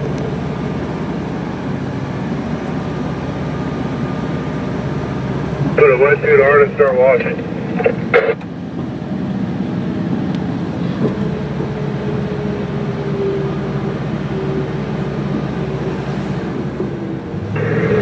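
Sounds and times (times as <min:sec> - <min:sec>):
truck engine drone from cab: 0:00.0 - 0:18.0
faint whine: 0:05.7 - 0:08.5.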